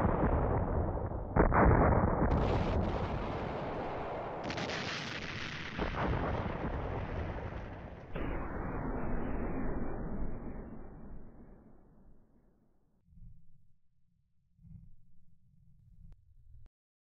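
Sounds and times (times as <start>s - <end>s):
artillery booms rumbling: 0.0s - 11.7s.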